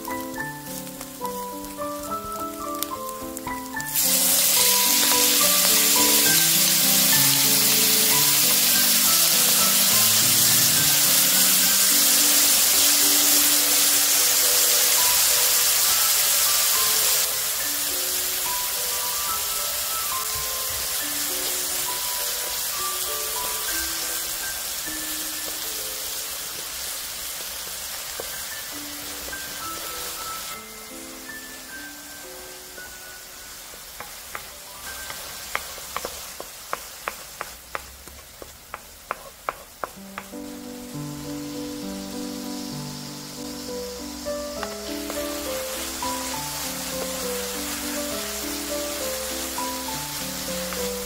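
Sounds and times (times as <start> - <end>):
light background music: 0.0 - 36.2, 39.8 - 51.0
kimchi sizzling in a frying pan: 0.0 - 51.0
wooden spatula clacking on pan: 34.0 - 40.4.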